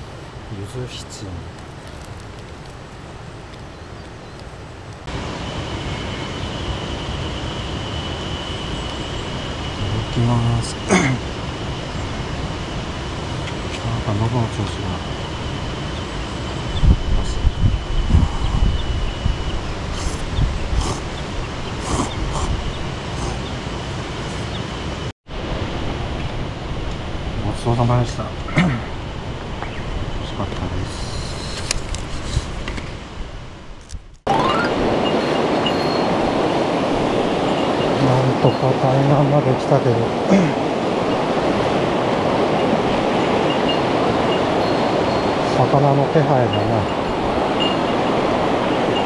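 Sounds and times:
wind buffeting microphone: 0.0s - 49.0s
thin high tone: 34.3s - 36.6s, 43.1s - 49.0s.

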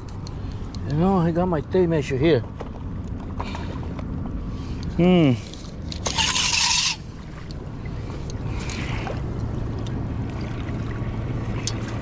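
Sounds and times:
low hum: 0.0s - 12.0s
tape measure blade rasping: 6.0s - 7.1s
tape measure scraping: 6.0s - 7.1s.

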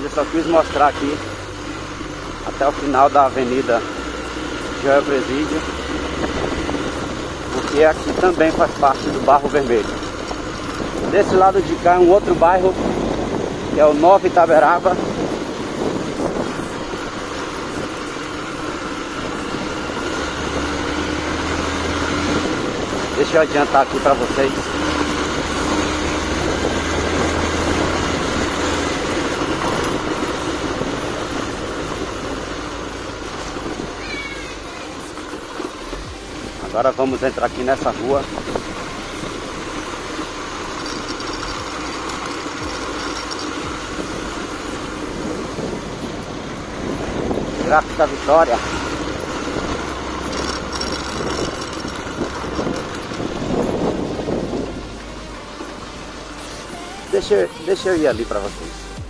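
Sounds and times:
low engine drone: 0.0s - 59.0s
vehicle road and engine noise: 0.0s - 59.0s.

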